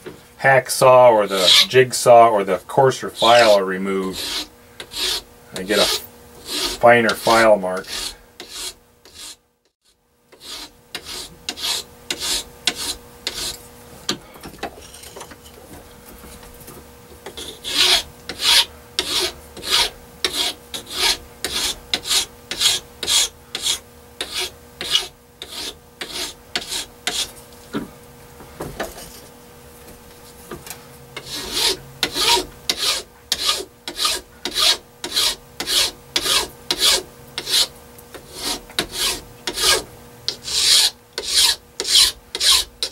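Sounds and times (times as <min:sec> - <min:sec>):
hand file strokes on metal: 0:01.2 - 0:01.8, 0:02.9 - 0:14.2, 0:17.2 - 0:27.4, 0:31.2 - 0:42.9.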